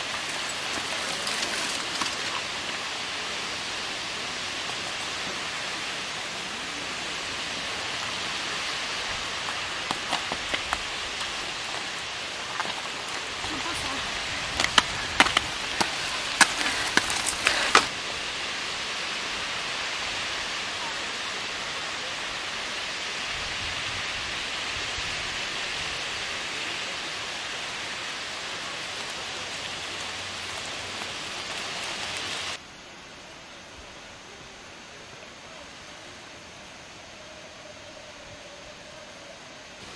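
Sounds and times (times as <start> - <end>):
tyres hissing on dirt track: 0.0 - 39.9
bike clicks and rattles: 14.5 - 17.9.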